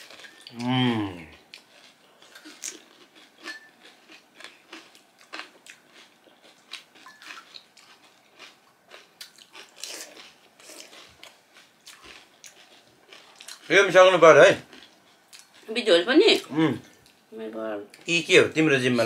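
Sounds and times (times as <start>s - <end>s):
chewing and crunching: 0.0s - 17.2s.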